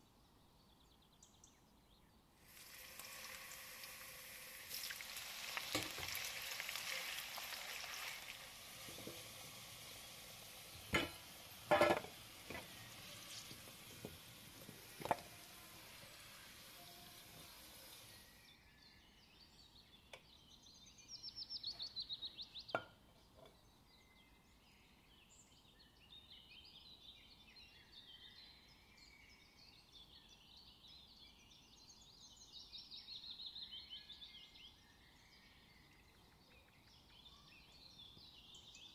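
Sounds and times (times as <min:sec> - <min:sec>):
potato wedges sizzling in oil: 0:02.4 - 0:18.4
faint bird chirps: 0:15.3 - 0:38.9.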